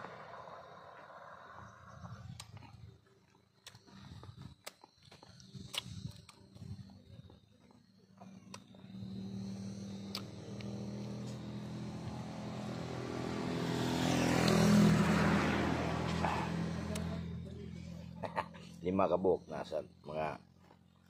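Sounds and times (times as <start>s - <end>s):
vehicle engine passing by: 0.0s - 2.8s, 8.2s - 20.5s.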